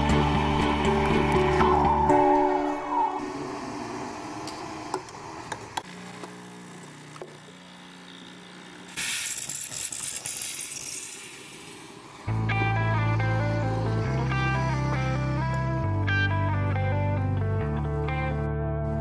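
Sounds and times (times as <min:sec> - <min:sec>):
steam wand hissing: 0:08.9 - 0:12.3.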